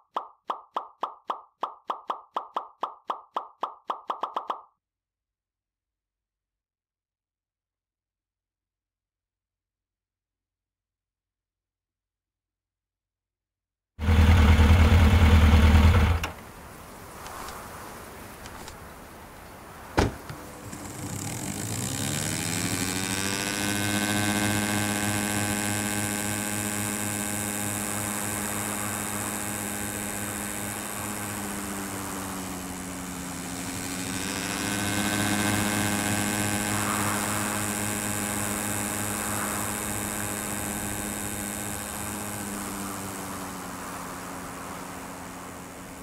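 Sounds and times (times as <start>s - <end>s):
propeller plane engine: 14.0s - 17.5s, 19.9s - 46.0s.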